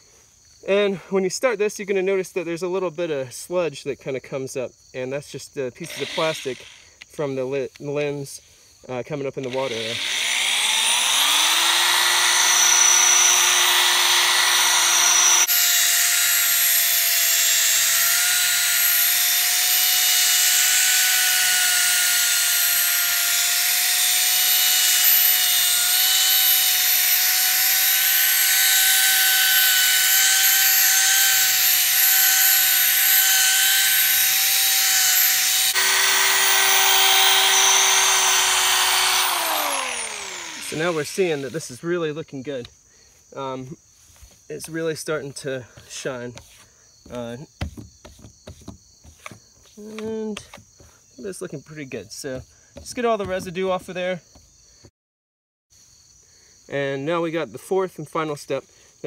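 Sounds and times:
drill motor whine: 5.8 - 6.8, 9.4 - 41.8
gritty sanding hiss: 16.7 - 42.6, 43.2 - 47.4.

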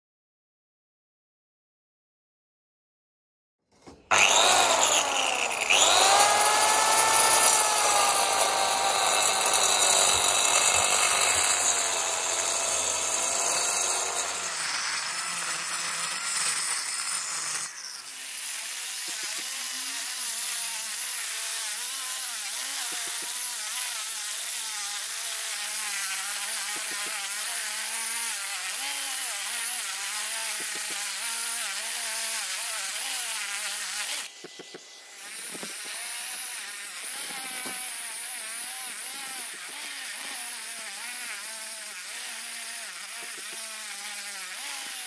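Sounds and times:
diamond core bit grinding concrete: 3.8 - 45.0.

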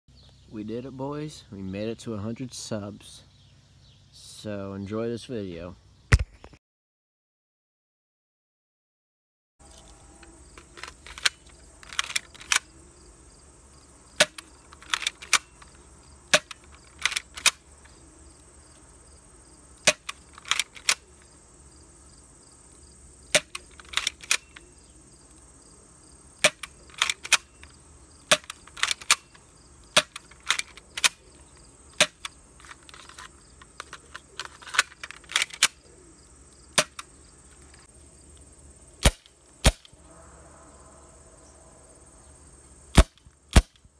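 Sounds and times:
air pistol shots: 14.2 - 15.6, 16.3 - 17.6, 19.8 - 21.0, 23.3 - 24.5, 26.4 - 27.5, 28.3 - 29.3, 29.9 - 31.2, 36.7 - 37.1, 39.0 - 40.0, 42.9 - 43.9.

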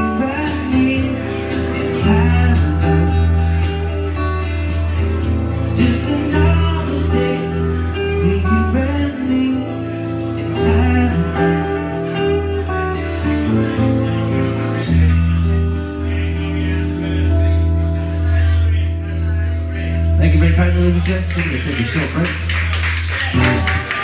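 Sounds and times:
acoustic and electric guitars: 0.0 - 24.0.

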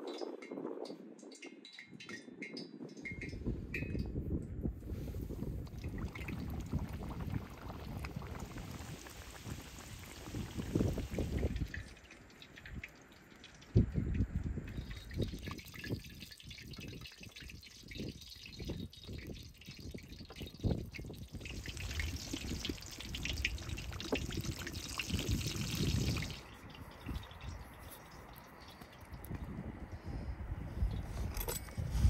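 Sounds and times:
food deep-frying in oil: 5.5 - 29.3.

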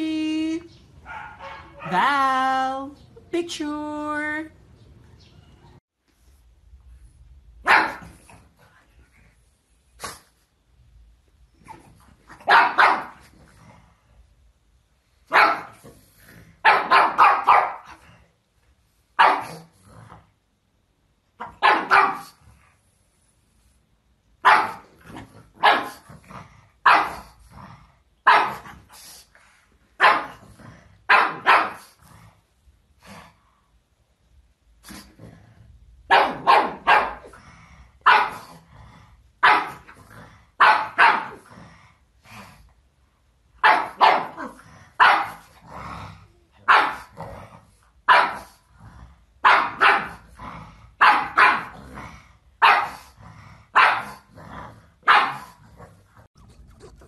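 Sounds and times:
dog barking: 1.0 - 2.0, 7.6 - 8.2, 12.4 - 13.2, 15.3 - 15.8, 16.6 - 18.0, 19.2 - 19.7, 21.4 - 22.4, 24.4 - 24.9, 25.6 - 26.0, 26.8 - 27.3, 28.2 - 28.6, 30.0 - 30.4, 31.1 - 31.9, 36.1 - 37.3, 38.0 - 38.5, 39.4 - 39.9, 40.6 - 41.4, 43.6 - 45.5, 46.6 - 47.1, 48.1 - 48.6, 49.4 - 50.2, 51.0 - 51.8, 52.6 - 53.1, 53.8 - 54.3, 55.0 - 55.6.

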